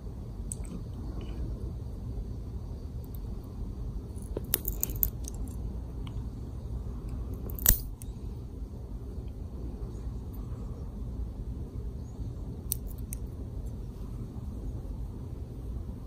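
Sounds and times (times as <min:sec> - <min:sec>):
clipper snipping claw: 0:07.4 - 0:08.0.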